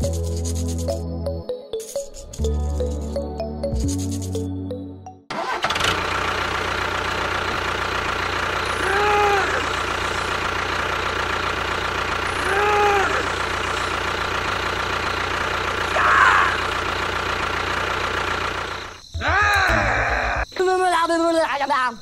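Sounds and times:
tractor engine idling: 0:05.3 - 0:20.4.

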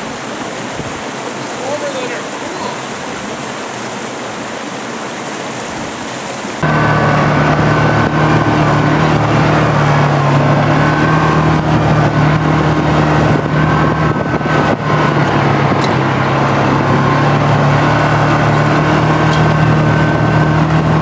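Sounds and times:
off-road vehicle engine running: 0:06.6 - 0:21.0
tyres rumbling on dirt track: 0:06.6 - 0:21.0.

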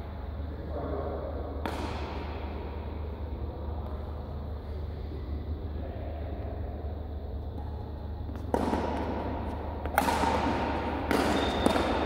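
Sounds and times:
rackets hitting shuttlecock: 0:01.6 - 0:02.8, 0:07.4 - 0:12.0.

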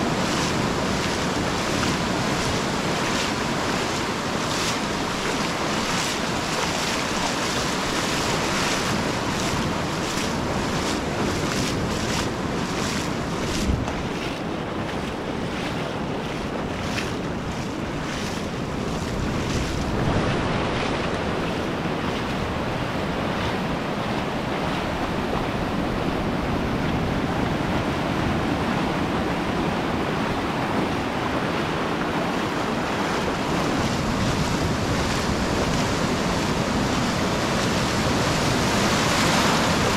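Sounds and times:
waves washing over sand: 0:00.0 - 0:39.9
wind buffeting microphone: 0:00.0 - 0:39.9.

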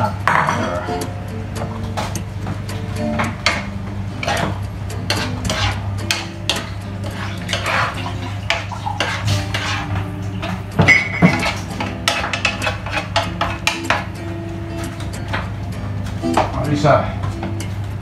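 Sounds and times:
metal spatula scraping a pan: 0:04.2 - 0:10.6, 0:11.2 - 0:14.0.

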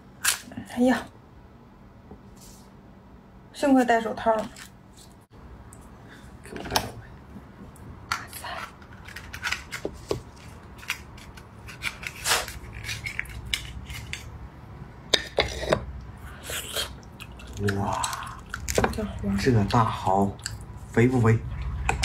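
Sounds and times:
oyster shells clicking and scraping: 0:08.1 - 0:14.4.

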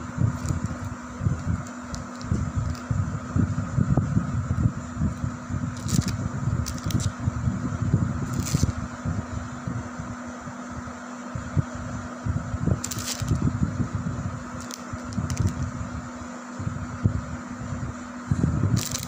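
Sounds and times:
steady fan hum: 0:00.0 - 0:19.0
plastic snack packet crinkling: 0:00.4 - 0:02.9, 0:05.8 - 0:07.1, 0:12.8 - 0:13.4, 0:14.6 - 0:15.6, 0:18.8 - 0:19.0.

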